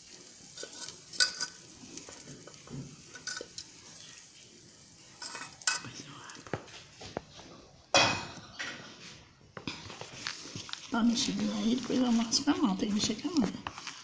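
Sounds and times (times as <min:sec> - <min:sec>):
metal spoon scraping a bowl: 0:00.6 - 0:01.6, 0:05.2 - 0:05.9.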